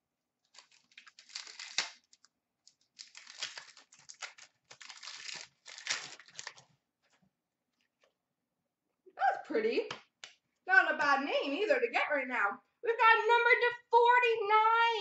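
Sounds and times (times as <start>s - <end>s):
foil wrapper tearing and crinkling: 0.4s - 6.7s.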